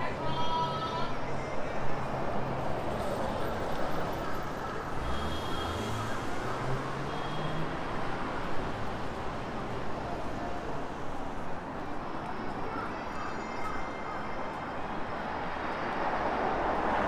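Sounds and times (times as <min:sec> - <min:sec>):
street traffic road noise: 0:00.0 - 0:17.0.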